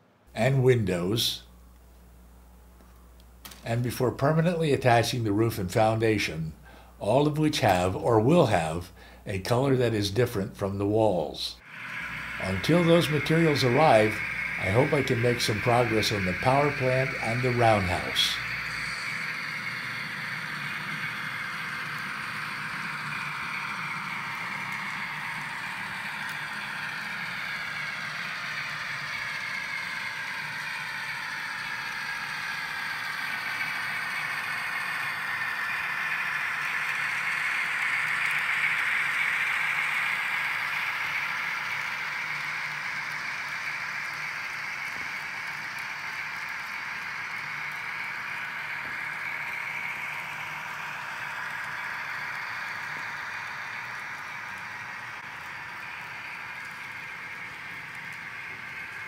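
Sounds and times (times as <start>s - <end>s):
model train motor whine: 2.8s - 59.0s.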